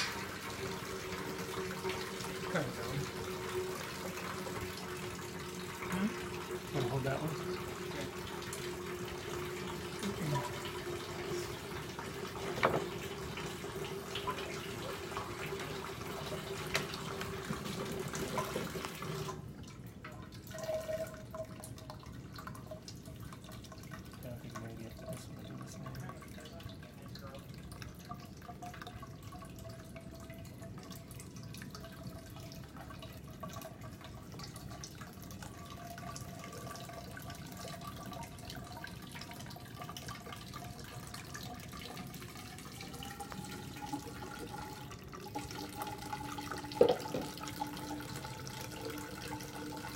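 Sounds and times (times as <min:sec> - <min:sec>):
water running hiss: 0:00.0 - 0:19.4.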